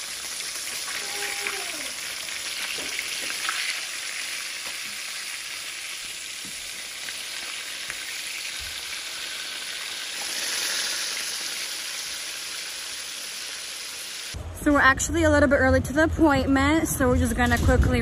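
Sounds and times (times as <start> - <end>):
fish sizzling in a pan: 0.0 - 14.4.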